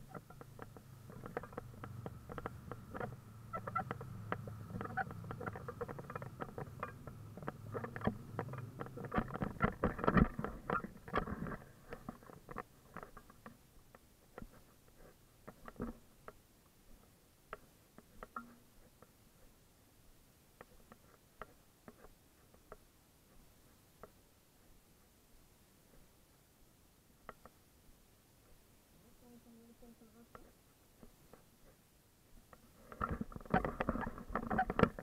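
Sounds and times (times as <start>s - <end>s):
irregular clicking and tapping: 0.0s - 19.6s, 20.5s - 24.8s, 27.2s - 27.6s, 30.3s - 35.0s.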